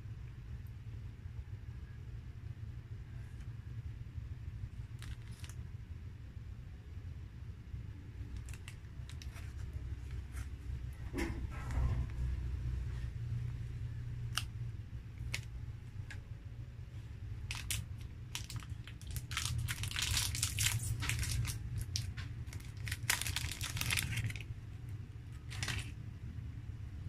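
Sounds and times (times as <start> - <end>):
plastic wrapper crinkling and tearing: 4.9 - 5.6, 8.3 - 10.2, 15.2 - 16.1, 17.4 - 24.6, 25.3 - 26.0.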